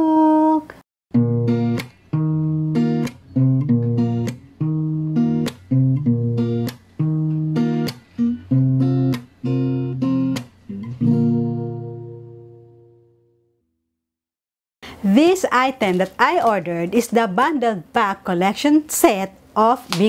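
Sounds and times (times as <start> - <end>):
acoustic guitar strumming chords: 1.1 - 13.5.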